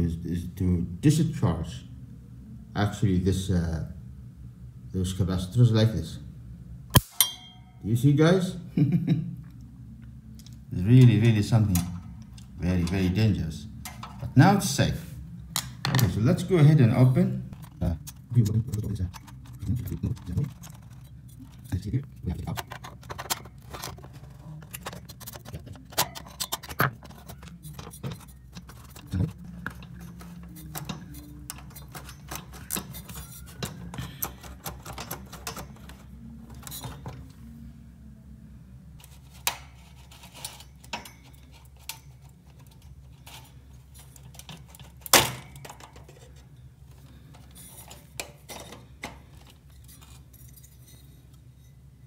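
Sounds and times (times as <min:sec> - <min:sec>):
steady low hum: 0:00.0 - 0:52.0
sharp loud click: 0:06.9 - 0:07.5
plastic and metal parts clicking: 0:17.6 - 0:37.2.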